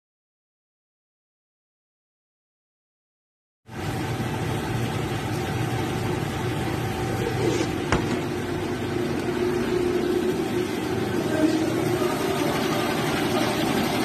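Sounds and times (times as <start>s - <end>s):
kitchen machine motor hum: 3.7s - 14.0s.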